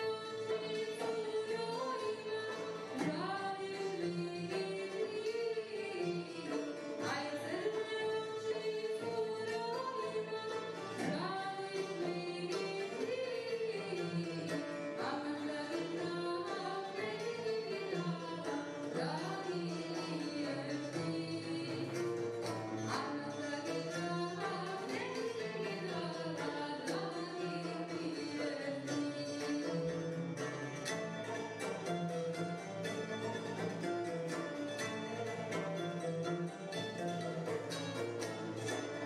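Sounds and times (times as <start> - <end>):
woman singing: 0.0 - 29.7
oud and plucked strings: 0.0 - 39.0.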